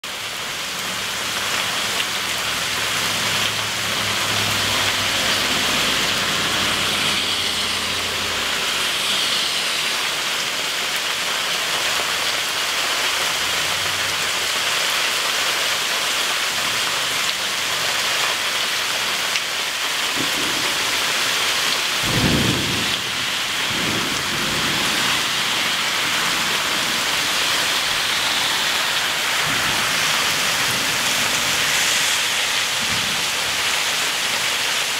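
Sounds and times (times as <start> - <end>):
heavy rain falling: 0.0 - 34.9
thunder rumbling: 20.1 - 33.7.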